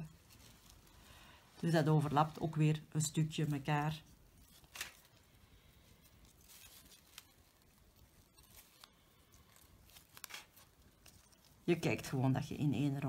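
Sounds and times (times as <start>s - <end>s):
fabric rustling in fingers: 3.4s - 11.6s.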